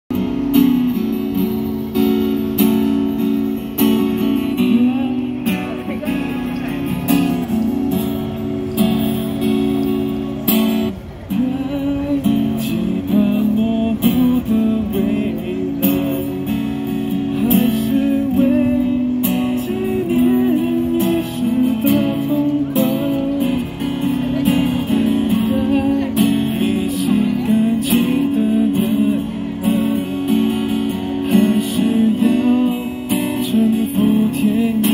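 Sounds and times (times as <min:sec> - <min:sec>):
acoustic guitar strumming chords: 0:00.1 - 0:34.9
person singing into a microphone: 0:11.3 - 0:34.9.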